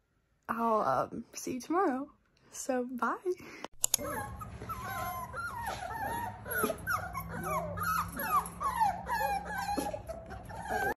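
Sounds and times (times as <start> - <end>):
puppies whining: 4.0 - 11.0.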